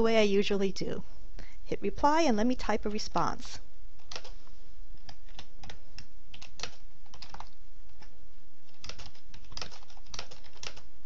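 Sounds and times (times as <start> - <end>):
steady low hum: 0.0 - 11.0
keyboard typing: 4.0 - 4.4, 5.0 - 10.9.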